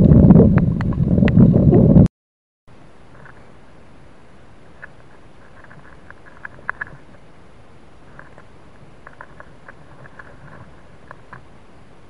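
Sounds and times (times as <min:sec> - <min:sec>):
camera microphone hiss: 0:00.0 - 0:02.1, 0:02.7 - 0:12.0.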